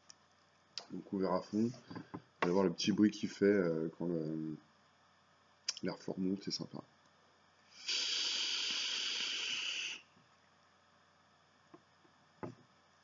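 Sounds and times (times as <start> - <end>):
air hissing through atomizer: 7.7 - 10.2.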